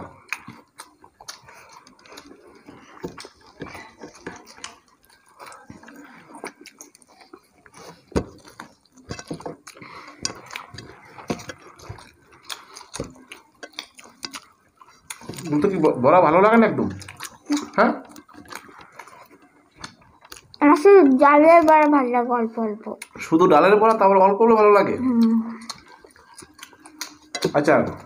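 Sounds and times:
chewing: 0.0s - 22.2s, 22.8s - 28.0s
fingers mixing rice: 0.2s - 20.6s.

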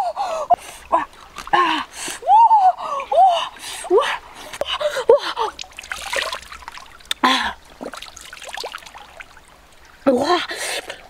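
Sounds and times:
coconut water trickling and splashing: 0.3s - 2.2s, 3.5s - 11.0s
woman's wordless voice sounds: 10.0s - 10.6s.

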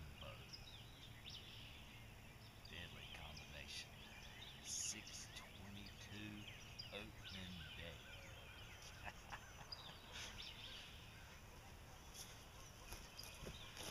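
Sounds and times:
small birds chirping: 0.0s - 13.9s
rustling on grass: 11.2s - 13.9s.

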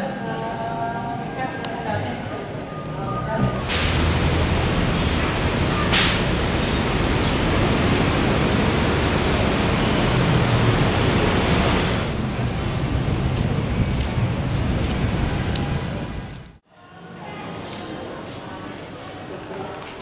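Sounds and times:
loud outdoor rushing noise: 3.4s - 16.4s.

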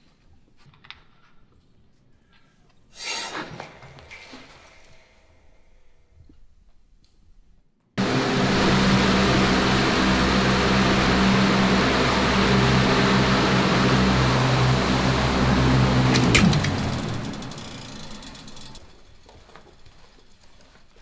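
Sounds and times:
floor fan running: 8.0s - 20.8s.

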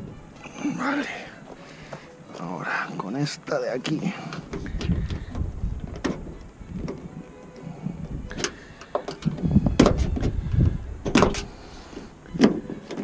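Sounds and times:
low handling rumble: 4.4s - 11.6s.

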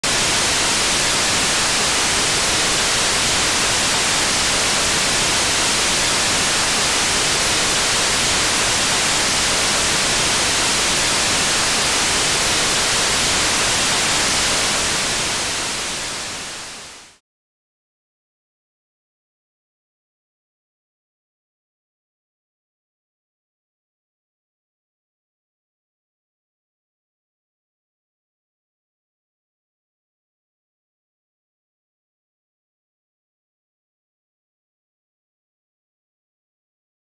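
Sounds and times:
tv static hiss: 0.0s - 17.2s.

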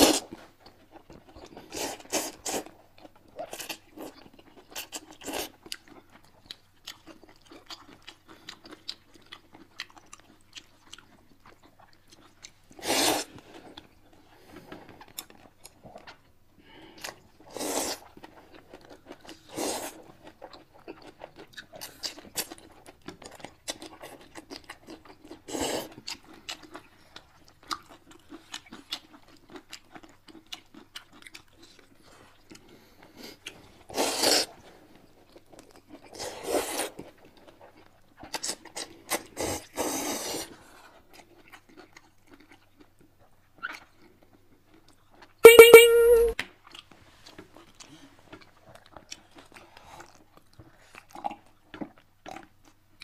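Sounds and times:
slurping noodles: 0.0s - 0.3s, 12.8s - 13.4s, 33.9s - 34.6s, 36.2s - 37.0s, 39.4s - 40.5s
crunching and chewing fried food: 0.0s - 45.5s, 46.4s - 53.0s.

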